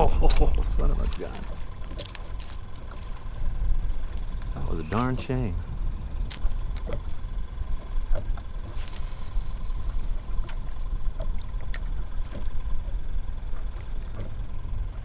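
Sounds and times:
water splashing: 0.0s - 15.0s
waves lapping against kayak hull: 0.0s - 15.0s
wind rumbling on microphone: 0.0s - 15.0s
water hissing: 8.7s - 10.6s.

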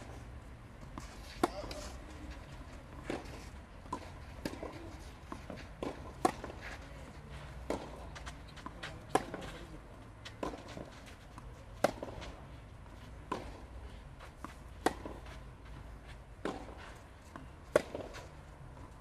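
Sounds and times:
racket striking tennis ball: 0.9s - 6.8s, 7.5s - 9.6s, 10.3s - 12.4s, 14.3s - 15.4s, 16.4s - 18.3s.

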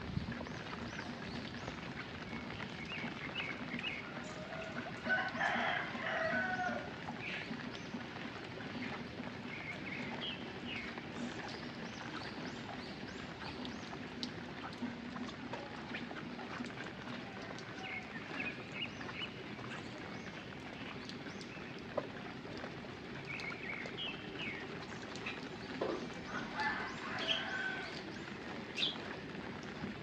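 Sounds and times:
rooster crowing: 4.4s - 6.9s, 26.3s - 28.0s
rain hissing: 15.8s - 30.0s.

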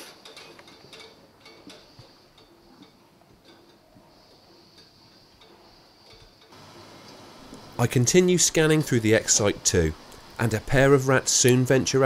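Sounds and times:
faint small clicks and ticks: 0.0s - 7.6s
background hiss: 0.0s - 12.0s.

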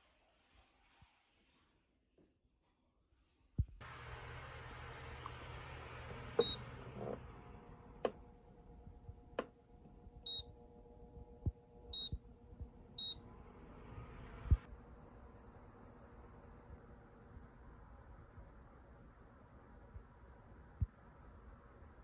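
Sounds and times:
faint steady hum: 3.8s - 22.0s
fan control panel beeping: 6.1s - 8.3s, 10.2s - 10.6s, 11.9s - 12.2s, 13.0s - 13.2s
sharp clicks and soft thumps: 9.0s - 10.4s.

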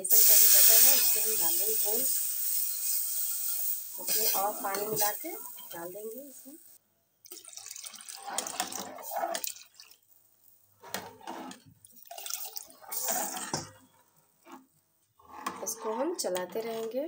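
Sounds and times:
liquid pouring: 7.2s - 10.0s, 11.8s - 13.8s
metal ladle stirring: 10.9s - 14.6s.

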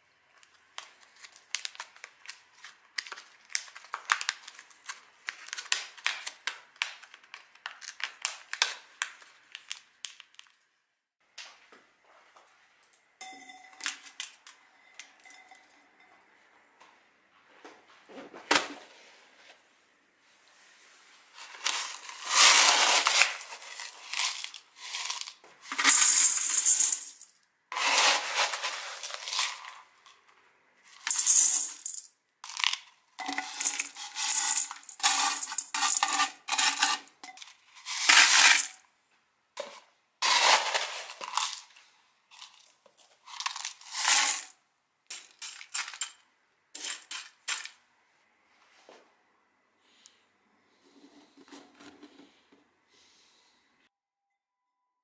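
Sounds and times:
gravel poured into glass bowl: 21.4s - 27.2s.

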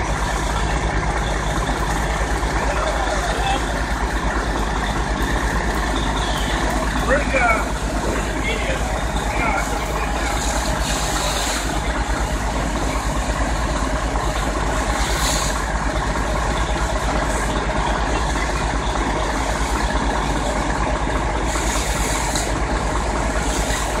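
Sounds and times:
fire engine running: 0.0s - 24.0s
short air hisses: 10.3s - 11.8s, 14.9s - 15.6s, 21.5s - 22.6s.

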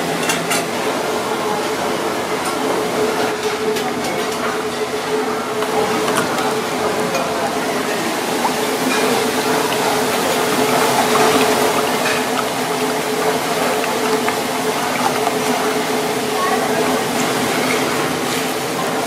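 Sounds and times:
kitchen hum: 0.0s - 19.0s
eggs being beaten in a bowl: 8.3s - 16.3s.

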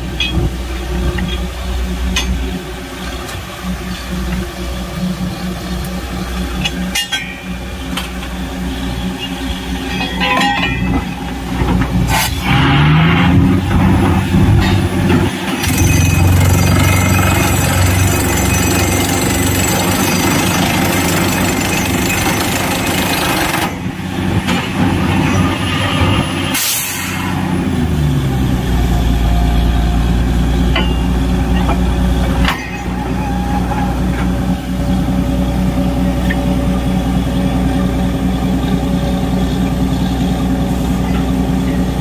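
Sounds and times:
engine running low: 0.0s - 42.0s
drilling machine rough noise: 12.4s - 30.4s.

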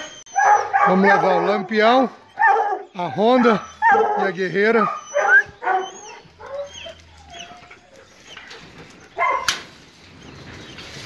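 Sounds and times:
hounds whining faintly: 0.0s - 10.9s
loud dog bark: 0.4s - 1.7s, 2.4s - 6.7s, 9.2s - 9.6s.

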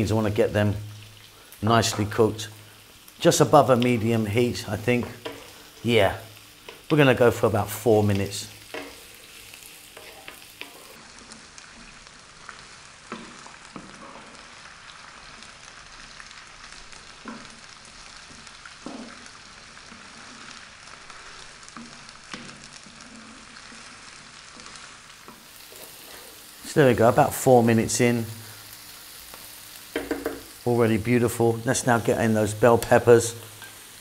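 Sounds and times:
vegetables sizzling in oil: 0.0s - 34.0s
wooden spatula knocking on pan: 30.0s - 30.5s.

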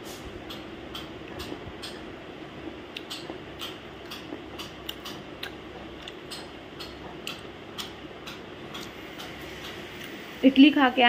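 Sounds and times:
low room hum: 0.0s - 11.0s
crunchy chewing: 4.1s - 6.4s.

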